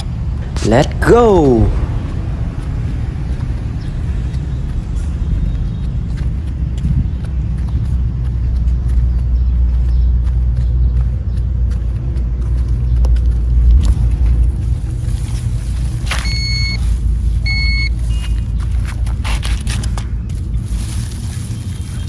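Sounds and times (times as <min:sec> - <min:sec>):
steady low rumble: 0:00.0 - 0:22.0
metal detector beeping: 0:16.1 - 0:18.4.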